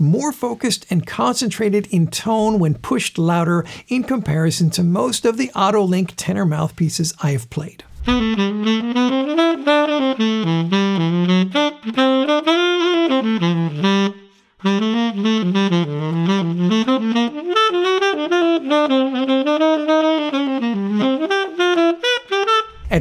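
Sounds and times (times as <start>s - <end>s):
tenor saxophone melody: 8.1s - 23.0s.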